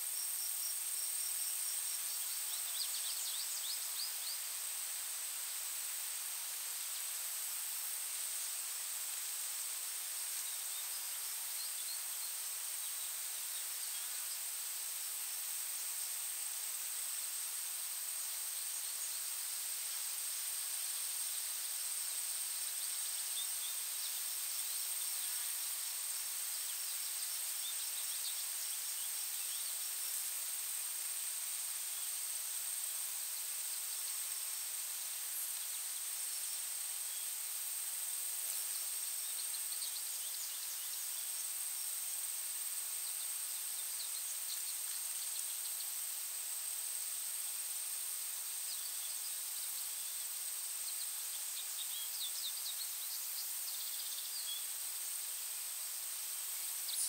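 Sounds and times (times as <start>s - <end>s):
soft steady hiss: 0.0s - 57.0s
faint bird chirps: 48.6s - 54.8s, 56.6s - 57.0s.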